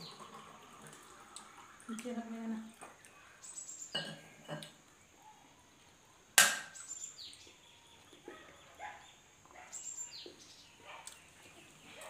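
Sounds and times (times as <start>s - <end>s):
bird chirping: 3.0s - 4.1s, 5.1s - 12.0s
people chewing: 10.2s - 12.0s.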